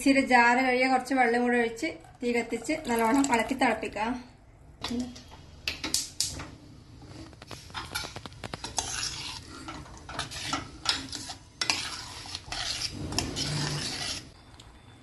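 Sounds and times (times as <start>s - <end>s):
metal ladle scraping pot: 7.1s - 14.4s.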